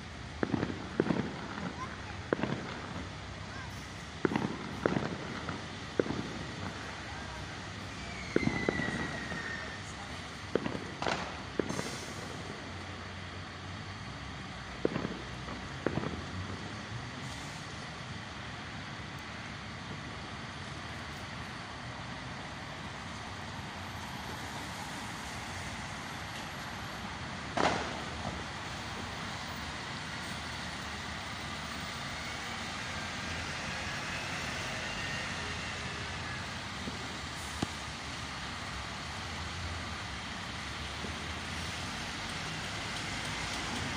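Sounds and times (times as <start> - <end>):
diesel fire engine running: 0.0 - 43.9
air brakes releasing: 11.7 - 12.5, 17.2 - 17.8.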